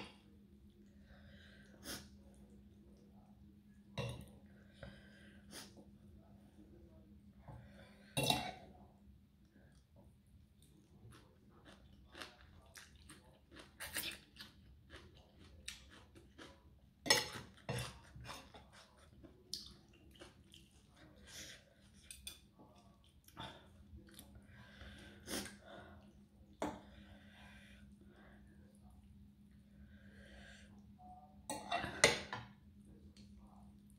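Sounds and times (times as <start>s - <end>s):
chewing and slurping noodles: 10.6s - 26.2s.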